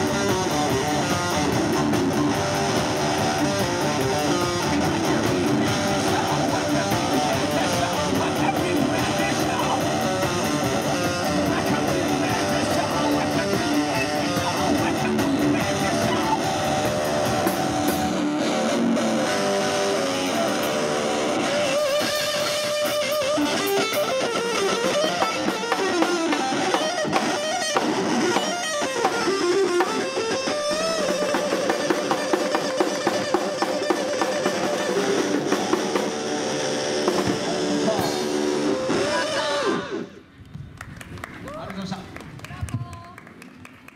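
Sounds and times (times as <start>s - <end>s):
deep bass: 0.0s - 21.8s
drum kit: 0.0s - 40.1s
live rock band playing: 0.0s - 40.3s
electric guitar: 0.0s - 40.4s.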